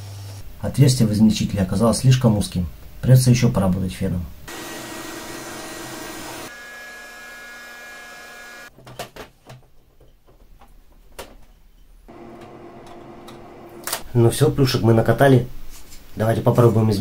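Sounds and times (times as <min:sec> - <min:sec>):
heat gun blowing: 0:04.5 - 0:08.7.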